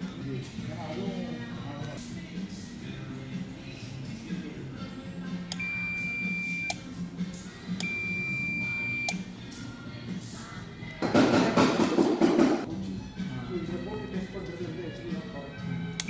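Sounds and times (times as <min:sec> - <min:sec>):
multimeter high beep: 0:05.6 - 0:06.8, 0:07.8 - 0:09.2.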